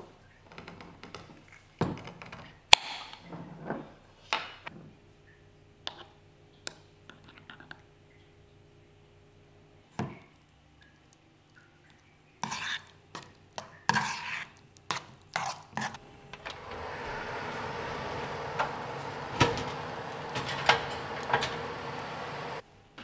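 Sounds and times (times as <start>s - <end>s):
steady hiss: 16.0s - 22.6s.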